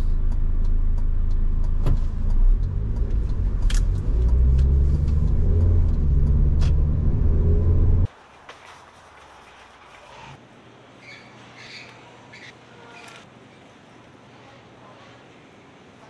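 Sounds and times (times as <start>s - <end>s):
car engine rumbling: 0.0s - 8.1s.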